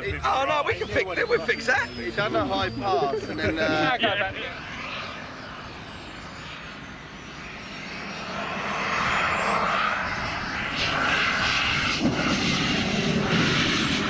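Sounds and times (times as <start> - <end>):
model jet engine whine: 0.0 - 14.0
rushing noise: 4.1 - 14.0.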